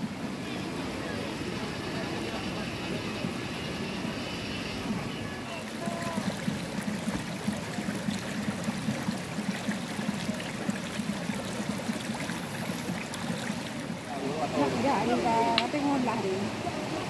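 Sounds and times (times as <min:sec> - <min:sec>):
feet wading through water: 0:04.8 - 0:16.6
stream trickling over stones: 0:05.4 - 0:16.5.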